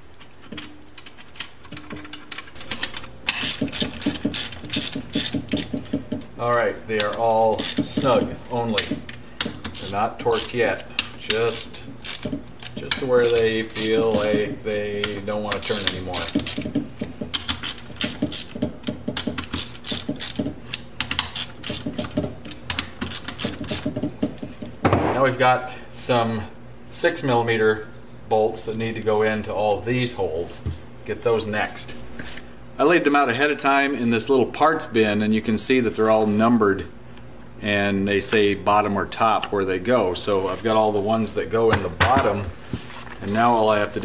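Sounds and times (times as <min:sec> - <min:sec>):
ratchet wrench clicking: 0:01.0 - 0:05.8, 0:07.0 - 0:08.1, 0:09.4 - 0:14.4, 0:15.0 - 0:16.7, 0:17.3 - 0:22.1, 0:22.7 - 0:23.8.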